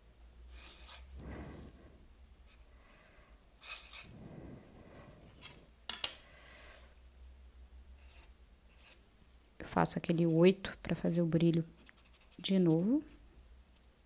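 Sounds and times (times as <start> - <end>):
marker scratching on paper: 0.5 - 1.8, 3.6 - 5.6, 8.0 - 9.2, 10.1 - 13.2.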